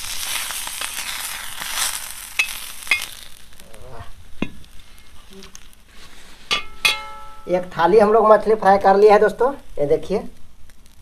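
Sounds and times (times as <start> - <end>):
fish sizzling in oil: 0.0 - 11.0
metal spatula scrapes and taps: 6.5 - 7.5.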